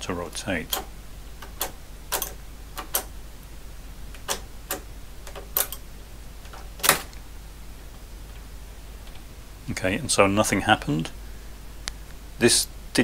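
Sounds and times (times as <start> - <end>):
mechanical calculator clicks: 0.7 - 3.1, 4.2 - 5.8.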